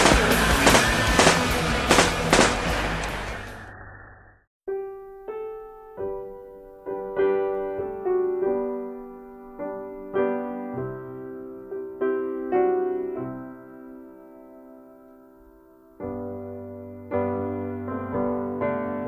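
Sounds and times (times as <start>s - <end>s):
slow piano music: 4.7s - 19.0s.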